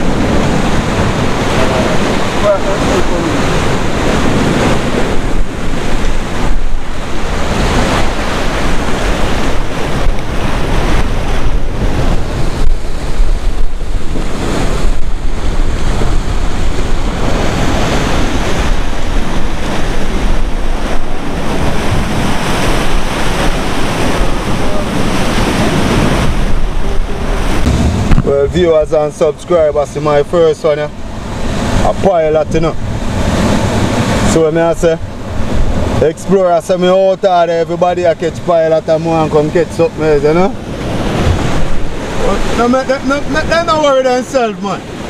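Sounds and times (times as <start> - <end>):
surf washing against rocks: 0.0 - 45.0
wind blowing on microphone: 0.0 - 45.0
steady low rumble: 23.0 - 34.3.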